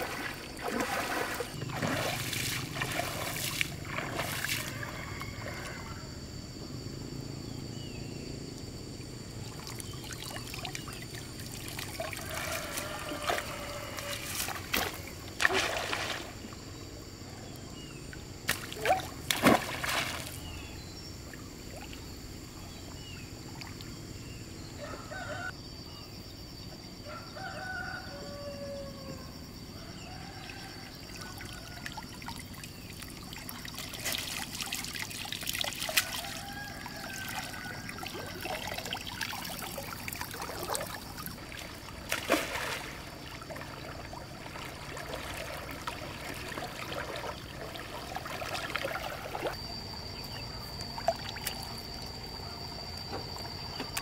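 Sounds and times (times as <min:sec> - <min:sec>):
pond water splashing: 0:00.0 - 0:05.6, 0:09.4 - 0:17.0, 0:18.2 - 0:22.2, 0:30.9 - 0:54.0
steady high-pitched whine: 0:46.4 - 0:54.0.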